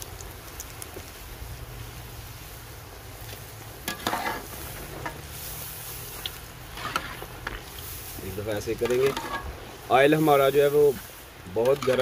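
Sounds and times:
fries sizzling in hot oil: 0.0 - 12.0
metal skimmer scraping a pan: 3.8 - 8.0, 8.6 - 9.6, 11.6 - 12.0.

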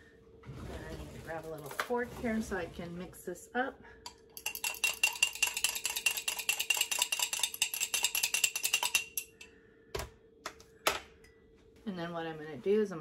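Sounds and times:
fork clinking against glass jar: 4.4 - 9.4.

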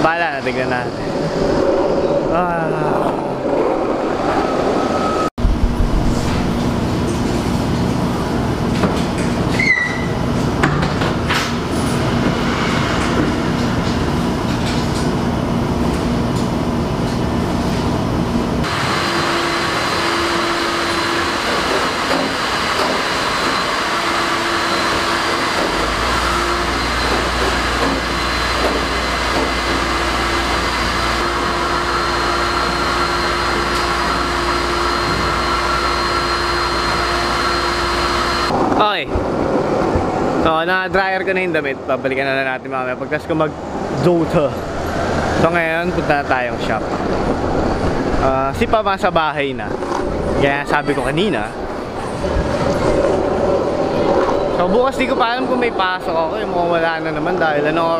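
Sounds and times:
washers and dryers running: 0.0 - 57.9
deep low hum: 0.8 - 8.7.

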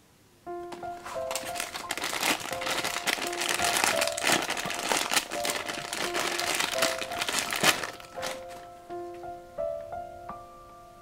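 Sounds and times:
simple background tune: 0.3 - 11.0
plastic bag crinkling: 0.7 - 8.7.

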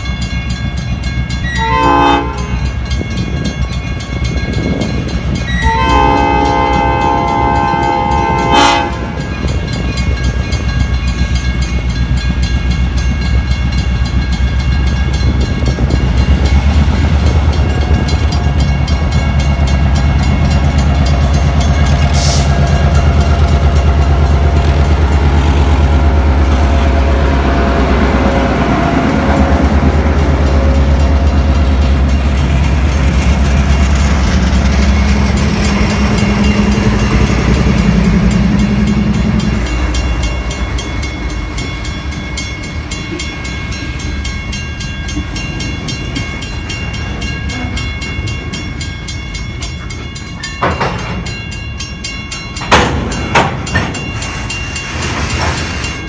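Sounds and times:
diesel engines rumbling: 0.1 - 56.0
locomotive air horn blasts: 1.4 - 2.7, 5.4 - 9.3, 22.1 - 22.6.

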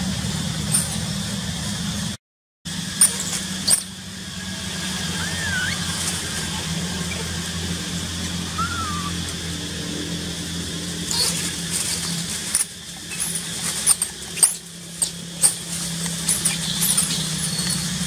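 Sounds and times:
steady low hum: 0.0 - 18.0
scrambling over dry leaves: 2.7 - 18.0
monkeys squeaking: 3.0 - 4.0, 4.6 - 7.8, 8.4 - 9.3, 11.0 - 18.0.

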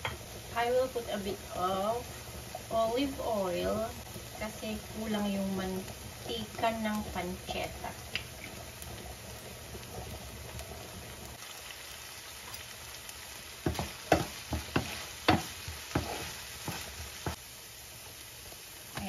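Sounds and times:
food sizzling in a frying pan: 0.0 - 19.0
spoon scraping and clacking on pan: 13.7 - 17.4.

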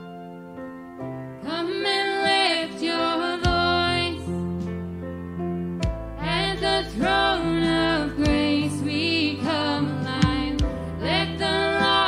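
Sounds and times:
woman singing: 1.4 - 4.4, 6.2 - 12.0
live band playing worship song: 5.9 - 12.0.

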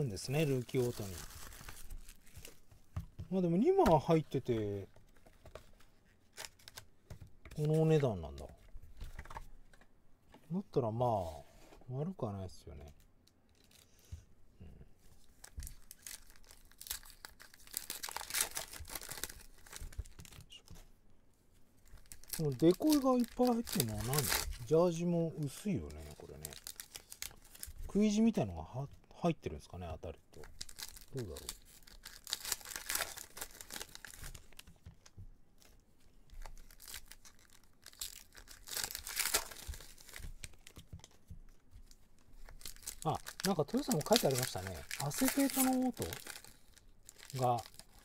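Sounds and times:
foil wrapper tearing and crinkling: 0.3 - 2.6, 15.4 - 20.4, 21.8 - 24.7, 25.9 - 27.7, 30.4 - 34.7, 36.4 - 40.8, 42.4 - 48.0.

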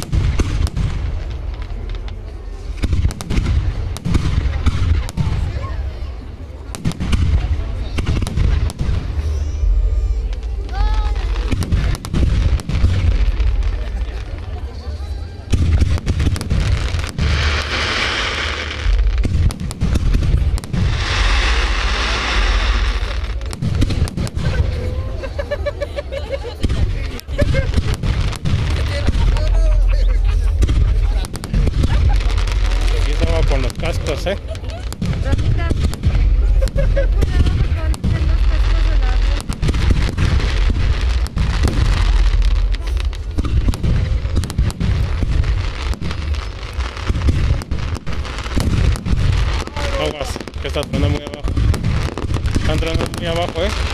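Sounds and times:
heavy low rumble: 0.0 - 25.8, 26.5 - 53.9
fireworks bangs: 0.0 - 53.9
fireworks crackling hiss: 0.0 - 53.9.

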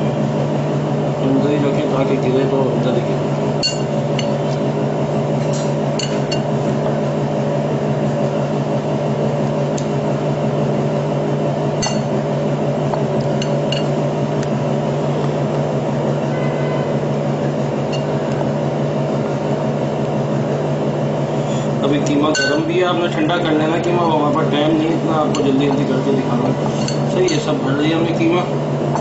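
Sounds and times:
steady low hum: 0.0 - 29.0
metal spoon clinking on glass bowl: 22.3 - 22.7.

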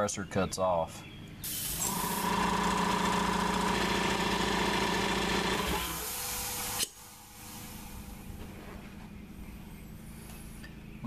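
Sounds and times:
drain valve spitting air: 1.4 - 3.0
air hissing from vent: 1.4 - 3.6, 5.5 - 9.0
air compressor pump running: 1.4 - 10.7.

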